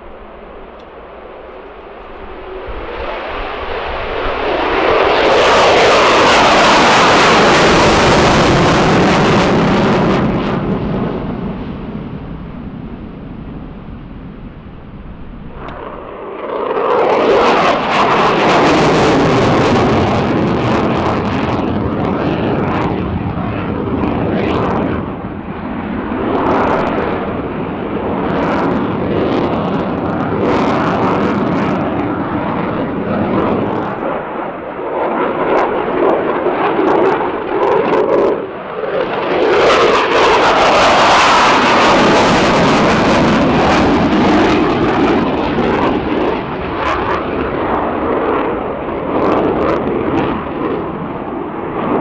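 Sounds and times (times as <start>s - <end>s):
fighter jet engine roar: 0.0s - 52.0s.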